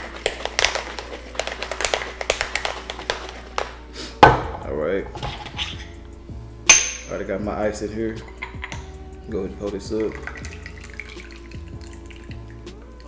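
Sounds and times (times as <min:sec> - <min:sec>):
cocktail shaker rattling: 0:08.2 - 0:09.0.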